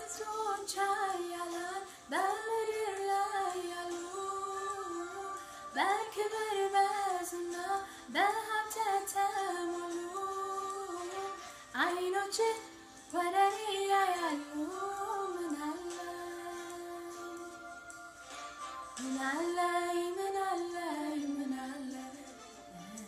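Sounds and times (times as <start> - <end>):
woman singing a hymn: 0.0 - 18.0, 19.0 - 23.0.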